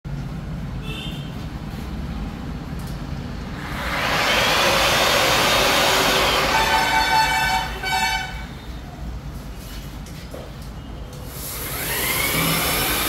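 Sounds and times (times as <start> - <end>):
drywall sanders whooshing: 3.6 - 7.8, 11.4 - 13.0.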